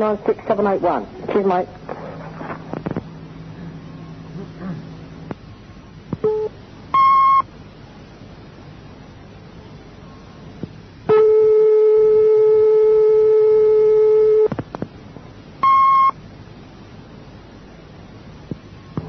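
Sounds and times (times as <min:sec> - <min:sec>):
tape hiss: 0:00.0 - 0:19.0
steady telephone tone: 0:06.2 - 0:07.5, 0:11.1 - 0:14.5, 0:15.6 - 0:16.2.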